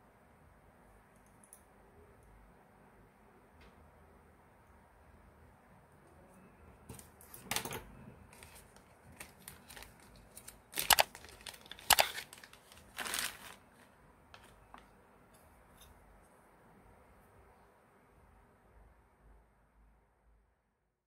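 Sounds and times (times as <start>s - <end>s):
plastic zip bag crinkling: 8.3s - 14.9s.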